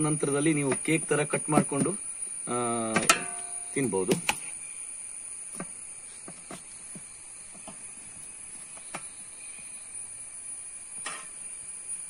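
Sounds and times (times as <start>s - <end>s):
high-pitched insect hum: 0.0s - 12.0s
metal ladle tapping and scraping: 2.9s - 3.7s.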